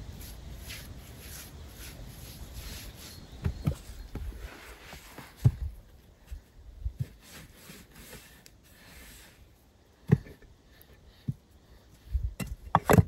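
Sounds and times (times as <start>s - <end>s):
clay bricks thudding: 12.4s - 13.0s.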